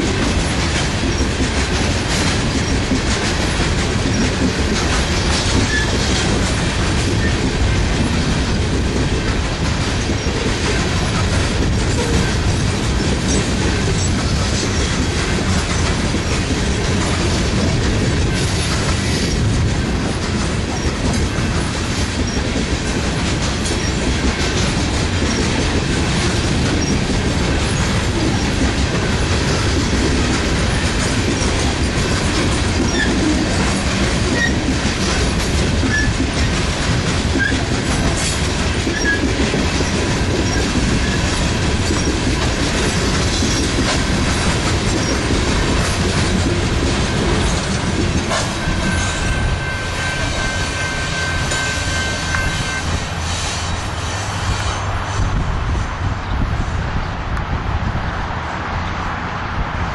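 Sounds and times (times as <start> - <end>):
freight train wheels rumbling on rail: 0.0 - 59.9
wheel squeal: 5.6 - 6.1, 32.9 - 33.3, 34.3 - 34.6, 35.8 - 36.2, 38.9 - 41.2, 48.8 - 54.9.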